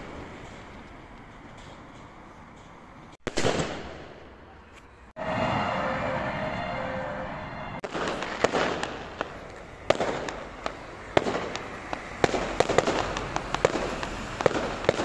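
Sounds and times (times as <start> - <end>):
fireworks bangs: 2.6 - 4.6, 5.2 - 15.0
fireworks crackling: 7.8 - 15.0.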